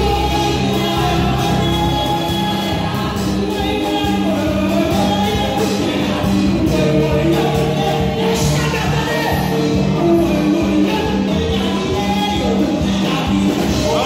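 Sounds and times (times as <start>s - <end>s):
instrumental accompaniment: 0.0s - 14.0s
voices singing gospel song: 0.0s - 14.0s.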